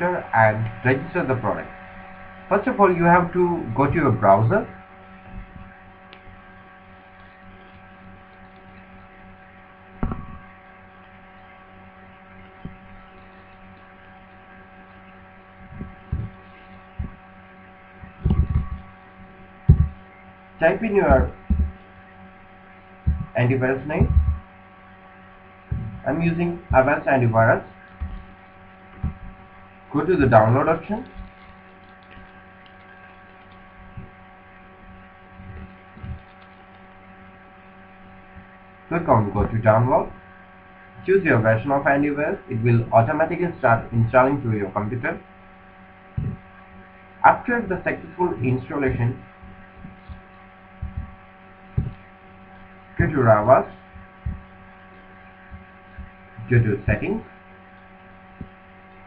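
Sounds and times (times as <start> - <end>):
electrical hum: 0.0 - 59.0
soft low thumps: 5.3 - 5.8, 10.0 - 10.5, 15.6 - 17.3, 18.0 - 19.0, 19.6 - 21.8, 23.0 - 24.5, 25.6 - 28.4, 29.0 - 31.4, 34.9 - 36.3, 46.1 - 46.6, 47.7 - 54.7, 55.4 - 57.1
dull thumps: 10.0 - 10.4, 15.6 - 16.4, 18.0 - 18.9, 19.6 - 20.0, 21.1 - 21.8, 23.1 - 23.4, 24.0 - 24.5, 25.7 - 26.0, 29.0 - 29.5, 46.2 - 46.5, 48.9 - 52.1, 53.9 - 54.6.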